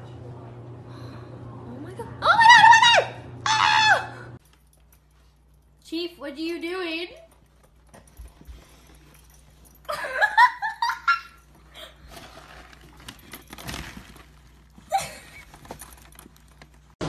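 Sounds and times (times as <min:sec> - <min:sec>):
dog rustling in trash can: 0:11.9 - 0:16.3
person laughing: 0:14.9 - 0:15.4.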